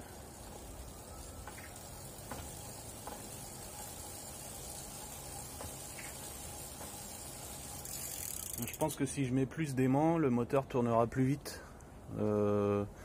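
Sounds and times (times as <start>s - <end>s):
pedal crank clicks: 0.0s - 9.1s
bicycle wheel and chain whirring: 0.0s - 9.2s
faint motor hum: 0.0s - 10.2s.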